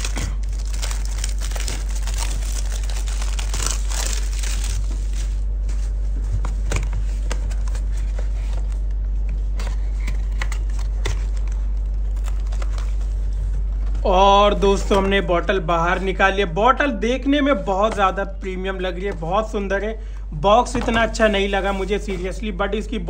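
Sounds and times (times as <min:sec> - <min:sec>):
shrink wrap tearing and crinkling: 0:00.0 - 0:05.6, 0:10.5 - 0:13.0
steady low hum: 0:00.0 - 0:23.0.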